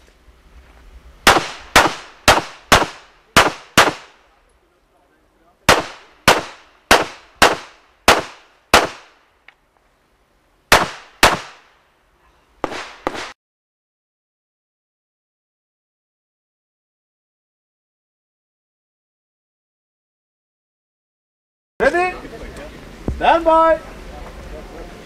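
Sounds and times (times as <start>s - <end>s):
pistol firing: 1.3s - 4.2s, 5.7s - 9.2s, 10.7s - 11.7s, 12.6s - 13.3s.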